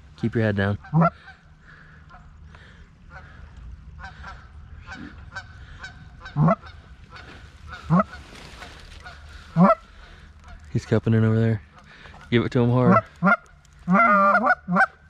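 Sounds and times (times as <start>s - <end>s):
geese honking: 0.0s - 15.0s
goose call honks: 0.6s - 1.5s, 4.0s - 10.7s, 12.7s - 15.0s.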